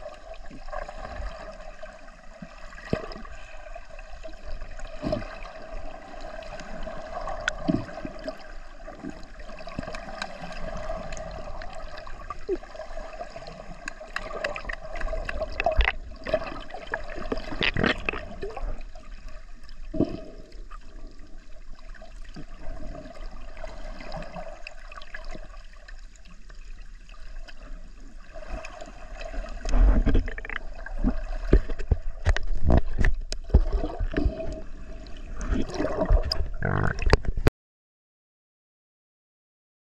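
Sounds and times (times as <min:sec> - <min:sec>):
water gurgling and sloshing: 0:00.0 - 0:37.5
small knocks on camera: 0:31.5 - 0:33.8.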